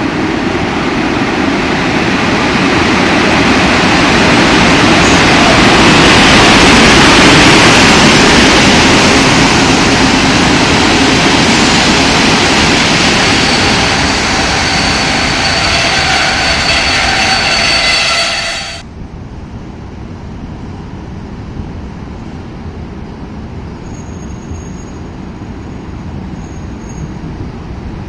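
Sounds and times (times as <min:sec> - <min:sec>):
train wheels on rails: 0:00.0 - 0:18.9
high brake squeal: 0:04.7 - 0:07.6, 0:11.7 - 0:18.8, 0:23.8 - 0:25.1, 0:25.8 - 0:27.2.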